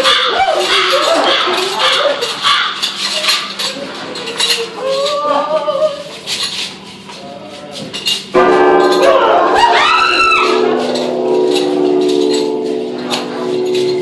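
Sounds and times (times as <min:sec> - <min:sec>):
wordless moaning voice: 0:04.4 - 0:06.1
steady low hum: 0:05.8 - 0:14.0.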